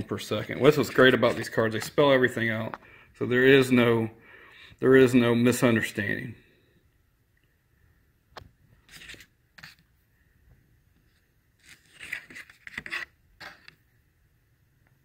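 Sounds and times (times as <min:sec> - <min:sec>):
cards scraping on tabletop: 0:00.6 - 0:02.0, 0:08.8 - 0:09.9, 0:11.1 - 0:13.8.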